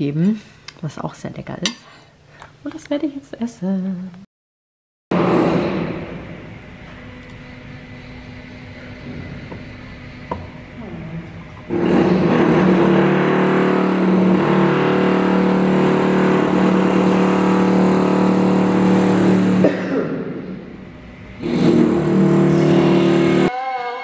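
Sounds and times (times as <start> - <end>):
loud construction machine noise: 5.1 - 23.5.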